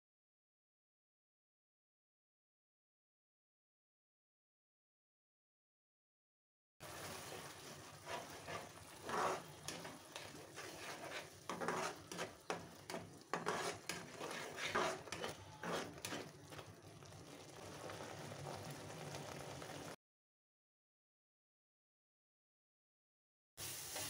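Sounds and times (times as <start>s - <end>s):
spatula scraping a pan: 6.8s - 16.8s
onions sizzling in hot oil: 6.8s - 20.0s, 23.6s - 24.0s.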